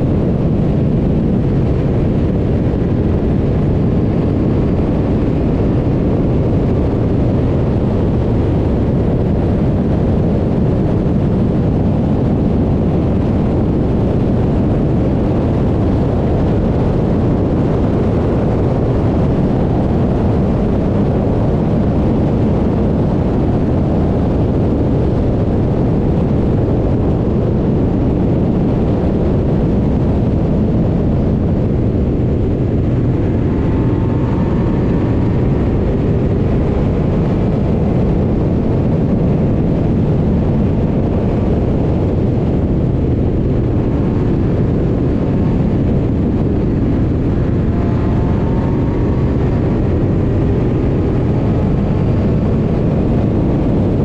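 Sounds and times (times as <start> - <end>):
wind rumble on microphone: 0.0 - 54.0
racing car engine running hard: 29.6 - 37.6, 41.2 - 54.0.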